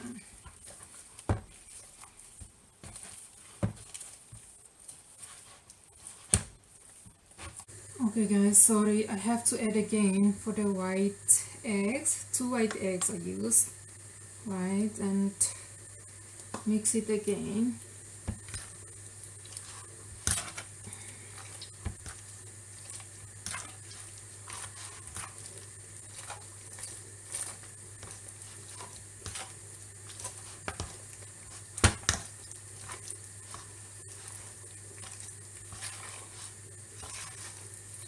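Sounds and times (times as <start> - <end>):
meat mixture squelching: 0.0 - 7.9, 15.8 - 38.0
low steady hum: 0.0 - 38.0.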